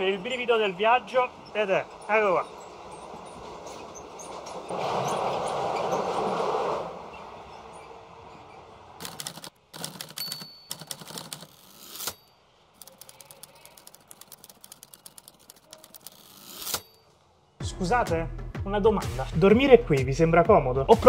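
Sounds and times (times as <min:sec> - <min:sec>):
moving train running: 0:00.0 - 0:09.0
typewriter key clacks: 0:09.0 - 0:12.2, 0:12.8 - 0:16.8.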